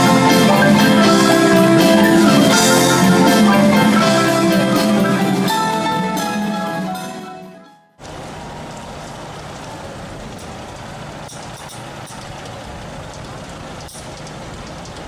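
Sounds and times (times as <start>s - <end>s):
city traffic noise: 8.0s - 15.0s
faint clicks: 10.4s - 15.0s.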